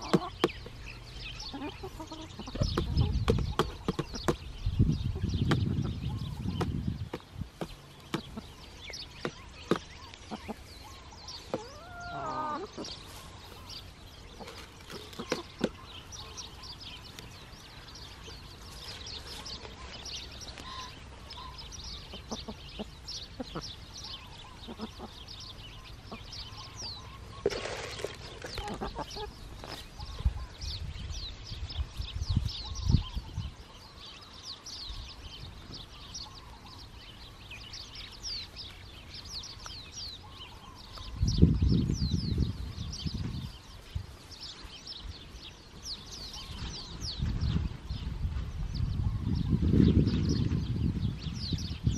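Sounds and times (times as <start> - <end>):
hens pecking: 0.0 - 0.8, 1.5 - 4.5, 5.4 - 25.2, 27.2 - 30.3.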